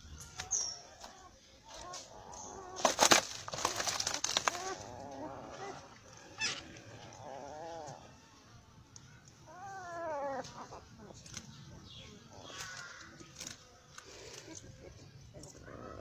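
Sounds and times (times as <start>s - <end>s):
sack rustling and crackling: 2.6s - 5.8s
young animal crying: 4.4s - 8.2s, 9.5s - 11.2s.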